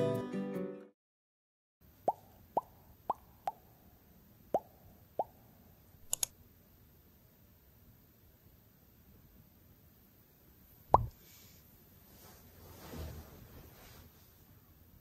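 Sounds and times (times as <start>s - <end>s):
faint room hiss: 1.8s - 15.0s
sharp clicks: 6.0s - 6.3s
water-drop plops: 10.9s - 11.1s.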